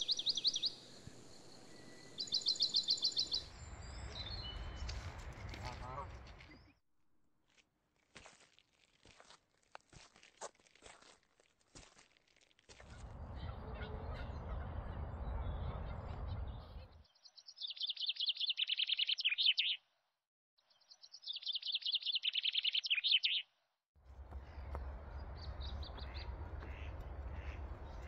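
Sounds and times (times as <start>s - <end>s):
songbird singing high notes: 21.3s - 23.4s.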